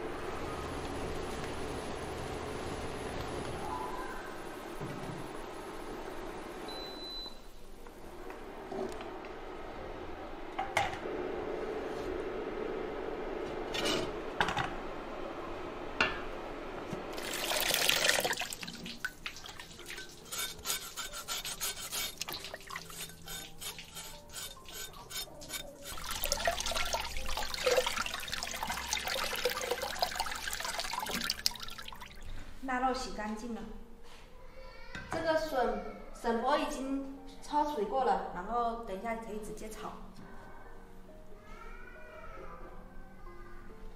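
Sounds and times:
water sloshing and splashing: 17.1 - 32.6
cleaver scraping rind: 20.2 - 26.0.

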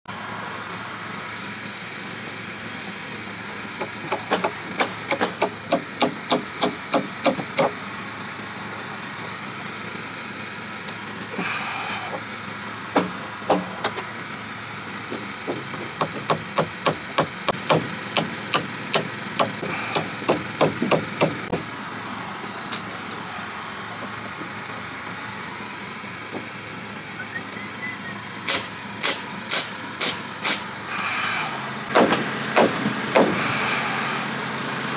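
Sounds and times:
hammer striking nails into wood: 3.8 - 7.8, 13.0 - 13.7, 15.5 - 21.6, 31.9 - 33.4.

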